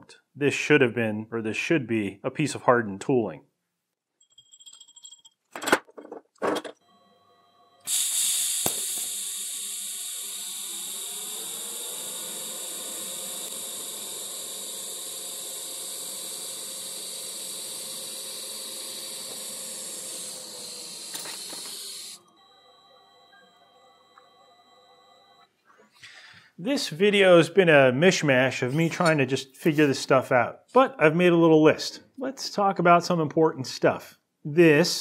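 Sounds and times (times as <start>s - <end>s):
welding arc hissing: 7.8s - 22.3s.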